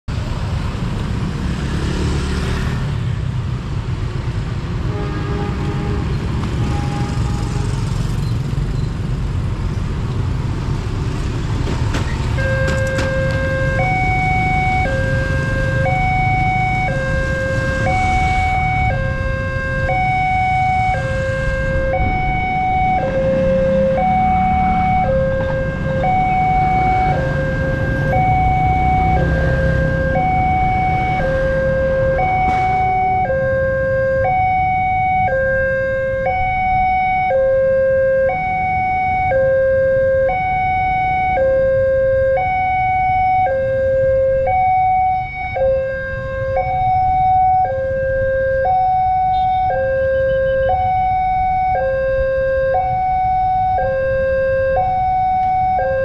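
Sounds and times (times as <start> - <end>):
road traffic: 0.0 - 56.0
two-tone crossing alarm: 12.3 - 56.0.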